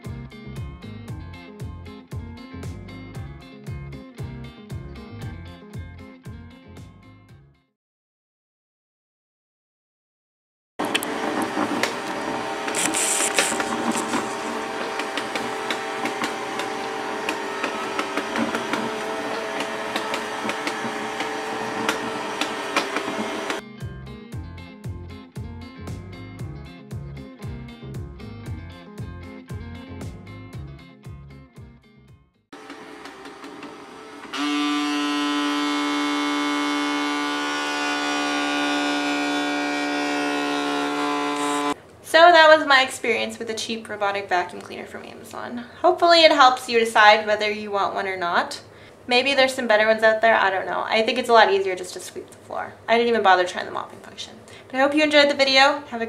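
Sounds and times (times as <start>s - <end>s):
robot vacuum motor whirring: 10.8s - 23.6s, 32.6s - 39.6s, 40.3s - 41.8s
brief bright hiss: 12.7s - 14.4s.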